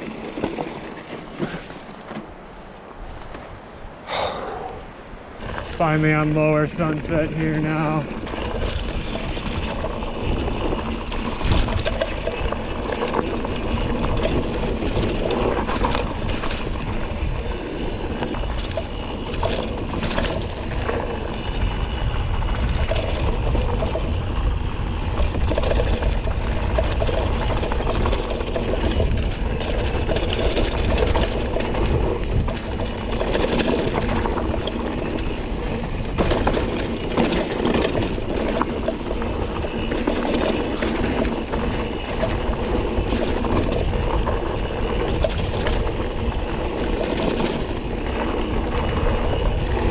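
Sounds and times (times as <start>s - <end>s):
bike rattling: 0.0s - 3.6s, 5.4s - 49.9s
tyre noise: 0.0s - 49.9s
wind on microphone: 3.6s - 38.4s.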